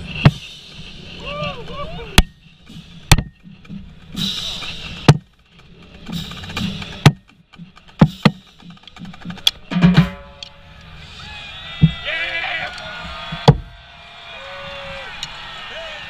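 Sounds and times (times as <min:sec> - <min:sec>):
faint stadium noise: 0:00.0 - 0:16.0.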